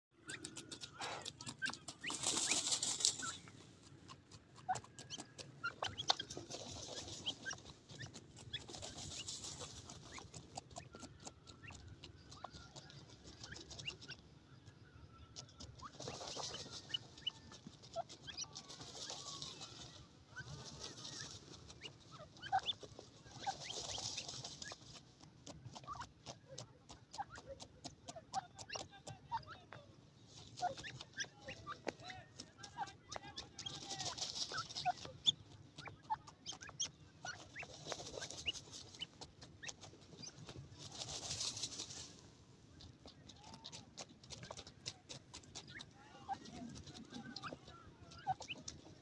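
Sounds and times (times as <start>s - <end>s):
birds rustling in dry dirt: 0.1s - 49.0s.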